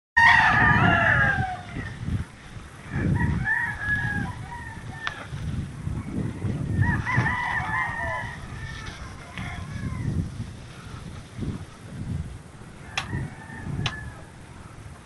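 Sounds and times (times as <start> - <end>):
rooster crowing: 0.2 - 2.0, 2.8 - 5.3, 6.3 - 10.4, 12.8 - 14.4
wind rumbling on microphone: 0.2 - 15.0.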